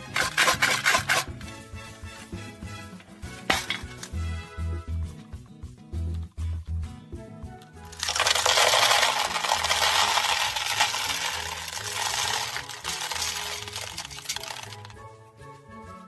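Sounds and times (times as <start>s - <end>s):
candies clattering into plastic: 0.0s - 1.3s, 7.9s - 15.0s.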